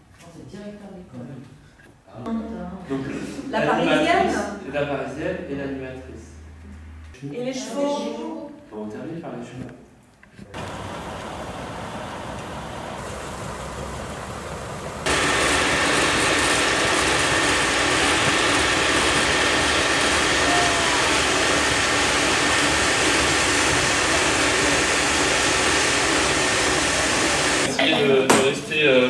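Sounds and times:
faint steady whine: 10.6s - 27.7s
industrial machinery noise: 10.6s - 27.7s
low outdoor rumble: 10.6s - 27.7s.

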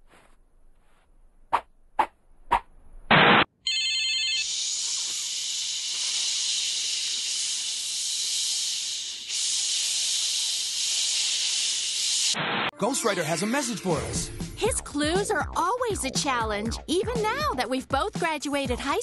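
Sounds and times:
steady hiss: 4.6s - 12.4s.

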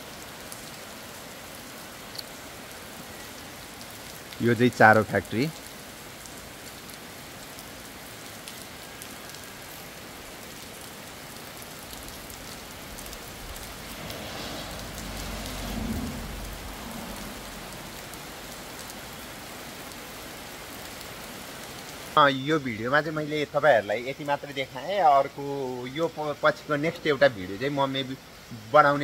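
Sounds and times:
steady rain hiss: 0.0s - 29.0s
low rumble: 13.6s - 18.0s.

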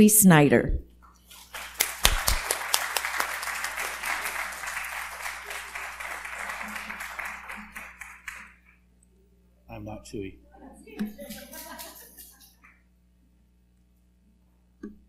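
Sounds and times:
audience applauding: 1.3s - 8.7s, 11.1s - 12.6s.

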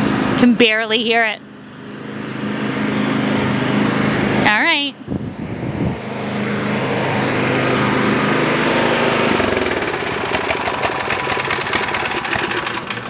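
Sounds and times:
snow blower engine running: 1.4s - 4.4s, 5.9s - 13.0s.

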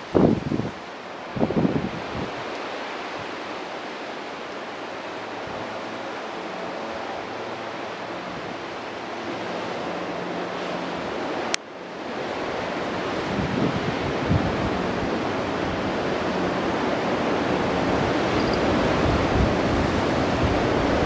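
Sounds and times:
strong wind blowing: 0.0s - 21.0s.

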